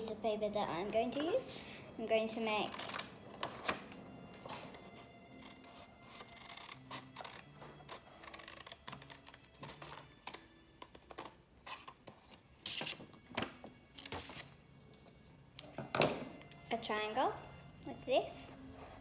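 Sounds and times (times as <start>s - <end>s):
scissors snipping paper: 5.4s - 13.0s.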